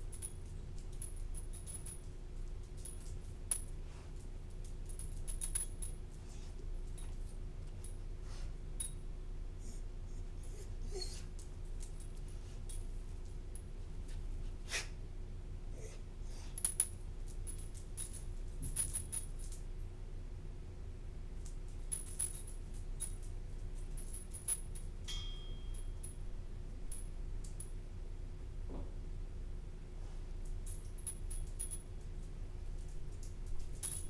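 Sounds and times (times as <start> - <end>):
faint metallic jingling: 0.0 - 8.1, 16.6 - 19.7, 21.8 - 27.9, 30.5 - 32.0, 32.8 - 34.0
steady low hum: 0.0 - 34.0.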